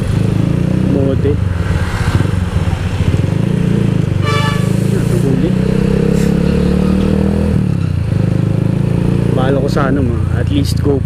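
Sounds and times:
brief high tone: 4.2 - 4.9.

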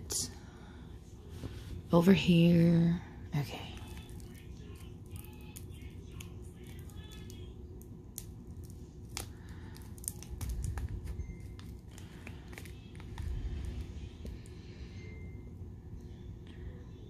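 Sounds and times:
low background hum: 0.0 - 17.0
plastic bag crinkling: 8.2 - 13.9.

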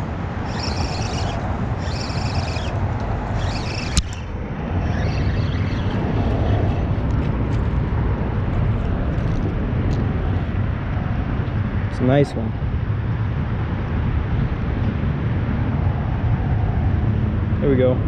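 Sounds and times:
fishing reel cranking: 0.0 - 7.2
wind rumble on microphone: 0.0 - 18.0
sharp click: 0.5 - 4.3.

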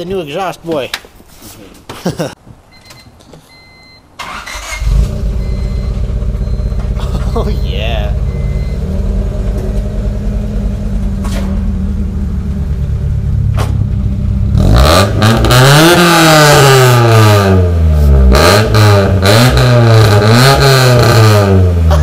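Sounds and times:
car engine idling and revving: 4.6 - 22.0.

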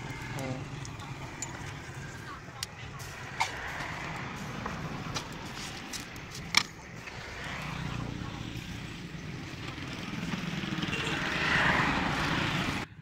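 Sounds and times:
street traffic: 0.0 - 13.0.

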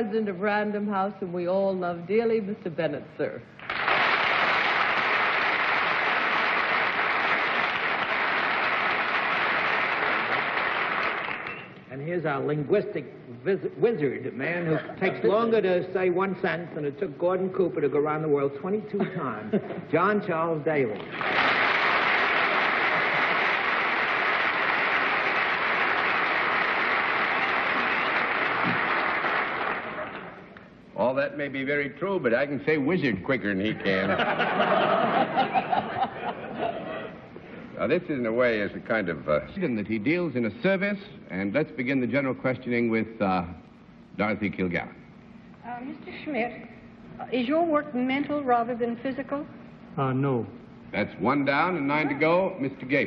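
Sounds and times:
audience applauding: 3.6 - 11.7, 21.0 - 30.5.

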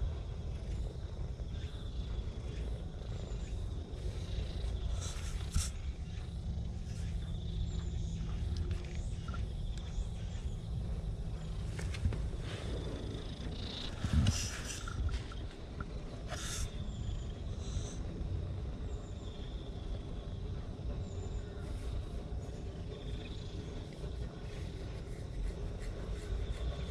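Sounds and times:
cat purring: 0.0 - 18.7.

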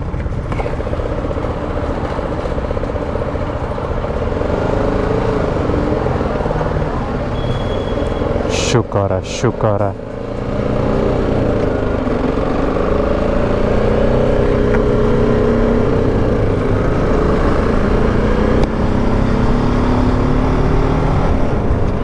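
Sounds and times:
motorcycle engine pulling away: 10.0 - 22.0.

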